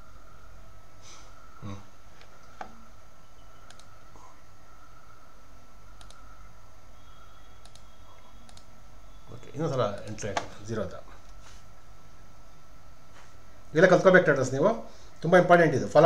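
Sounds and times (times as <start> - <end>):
faint electrical hum: 0.0 - 16.0
mouse and keyboard clicks: 3.6 - 3.9, 6.0 - 6.2, 7.6 - 8.7.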